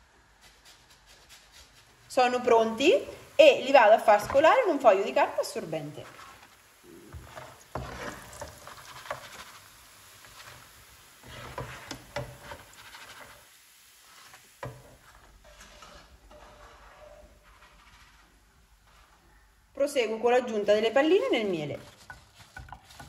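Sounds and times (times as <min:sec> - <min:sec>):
oil sizzling: 0:00.6 - 0:23.0
paper towel rustling: 0:02.8 - 0:10.7
skimmer scraping and tapping pan: 0:02.8 - 0:19.2, 0:20.6 - 0:23.0.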